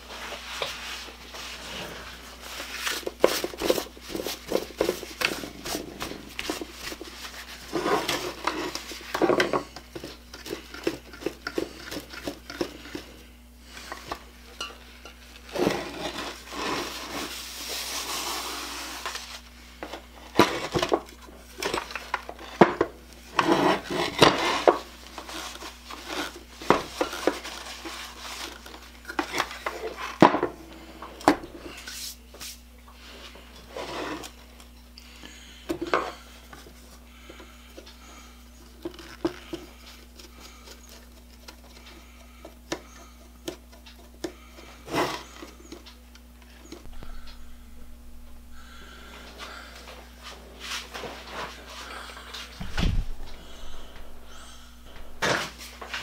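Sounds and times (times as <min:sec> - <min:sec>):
paper towel rubbing: 0:15.5 - 0:19.4.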